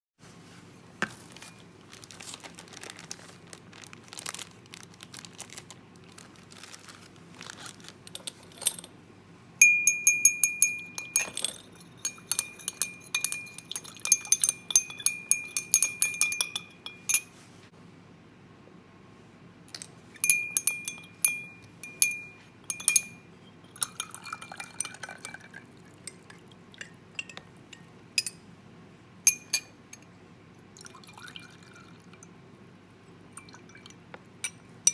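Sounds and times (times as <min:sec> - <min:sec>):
glass rod clinking in beaker: 0:09.6 - 0:17.4, 0:19.7 - 0:28.4, 0:29.3 - 0:30.1, 0:33.4 - 0:34.9
glassware clinks and taps: 0:09.6 - 0:17.4, 0:19.8 - 0:25.4, 0:26.8 - 0:28.4, 0:29.3 - 0:30.1, 0:33.4 - 0:34.9.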